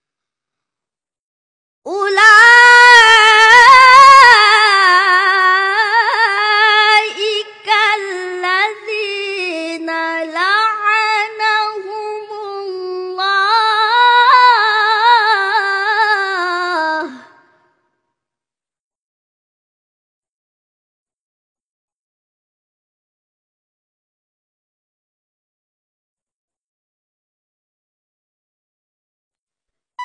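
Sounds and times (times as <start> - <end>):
boy reciting melodically: 1.9 - 17.2.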